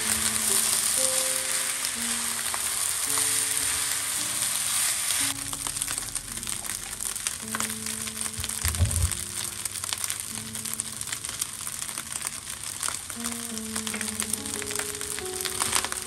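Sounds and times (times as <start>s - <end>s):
fried rice sizzling in a wok: 0.0s - 16.0s
low thump: 8.5s - 9.2s.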